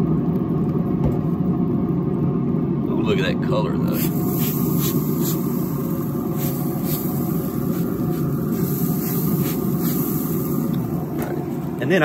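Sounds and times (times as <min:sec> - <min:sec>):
low rumble: 0:03.8 - 0:12.0
spray bottle hissing squirts: 0:03.9 - 0:11.6.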